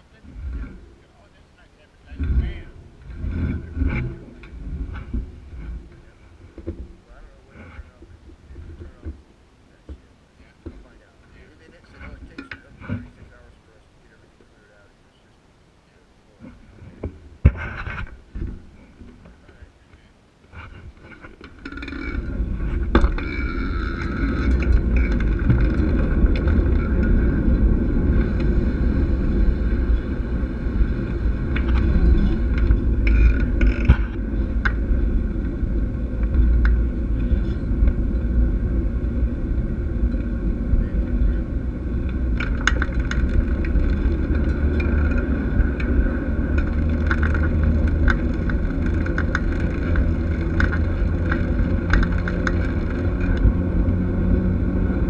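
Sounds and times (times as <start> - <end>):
wind on camera: 0.0 - 15.3, 15.9 - 55.0
bike tyres rumbling on concrete: 2.2 - 12.0, 20.4 - 55.0
bike clicks and rattles: 20.4 - 55.0.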